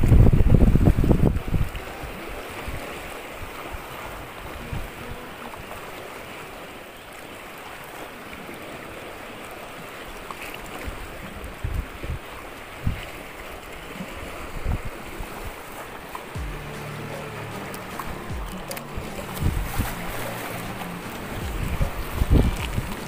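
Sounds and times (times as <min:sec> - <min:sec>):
wind buffeting microphone: 0:00.0 - 0:05.3, 0:10.8 - 0:16.7, 0:18.2 - 0:23.0
sea water lapping and splashing: 0:00.0 - 0:23.0
low thumps: 0:16.4 - 0:23.0.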